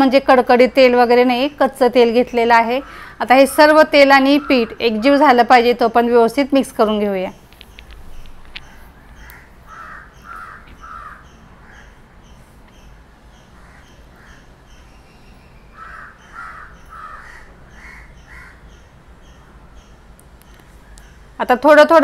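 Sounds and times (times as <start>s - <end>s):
crow cawing: 2.7s - 3.2s, 4.1s - 5.3s, 8.6s - 12.0s, 13.6s - 14.5s, 15.7s - 18.7s.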